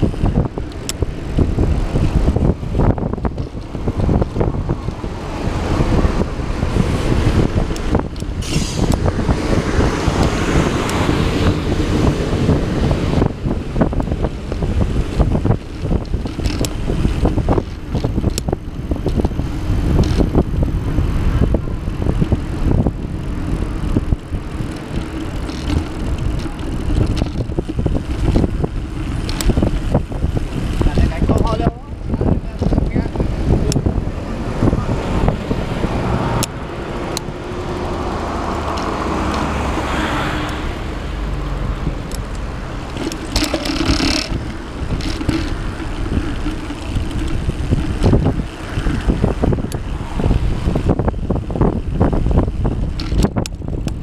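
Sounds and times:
knocks and rattles from riding: 0.0 - 54.0
road traffic passing: 0.0 - 54.0
wind rumble on microphone: 0.0 - 54.0.

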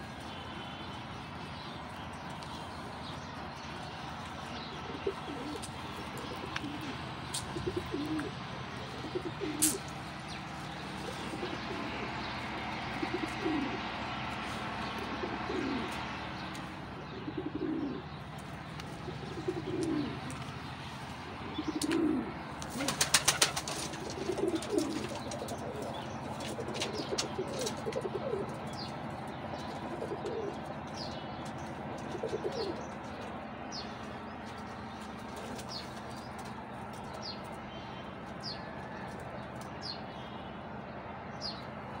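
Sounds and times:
pigeons cooing: 3.7 - 37.4
wings flapping: 21.8 - 28.0.

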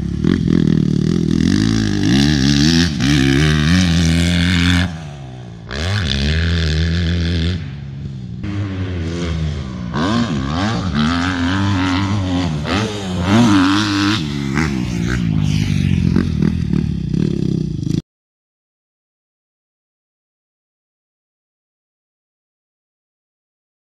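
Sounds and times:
motocross bike engine revving: 0.0 - 18.0.

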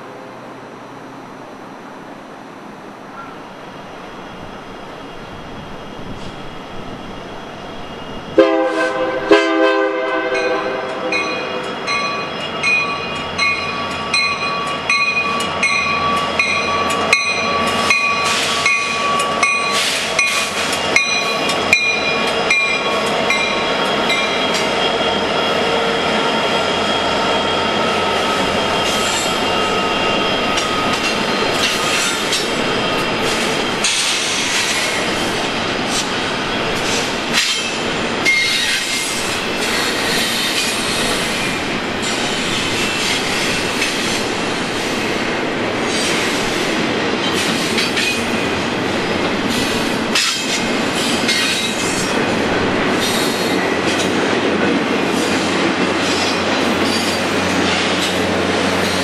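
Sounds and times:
diesel locomotives passing: 0.0 - 59.0
train horn blasts: 8.4 - 11.7
wheels clicking over rail joints: 49.1 - 58.2.

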